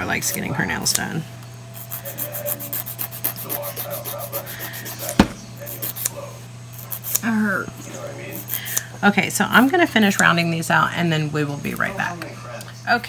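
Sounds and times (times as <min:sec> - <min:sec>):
nail file rasping on fingernails: 0:01.8 - 0:05.1, 0:05.7 - 0:06.1, 0:06.8 - 0:07.2
sharp knock: 0:05.2 - 0:05.5.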